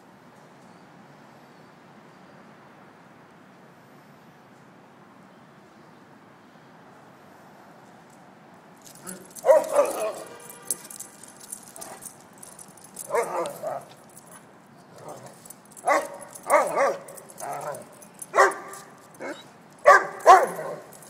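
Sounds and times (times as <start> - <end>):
dogs barking in play: 8.9 - 21.0.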